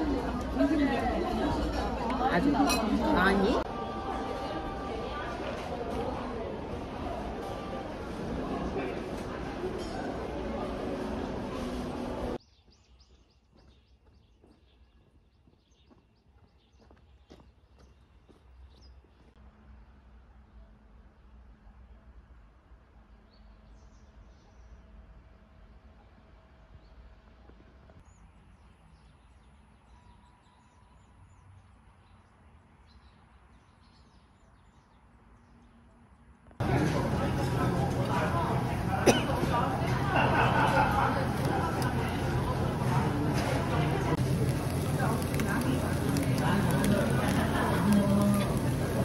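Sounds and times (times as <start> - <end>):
indoor shop din with voices: 0.0 - 13.4, 35.4 - 49.0
faint outdoor ambience: 0.0 - 49.0.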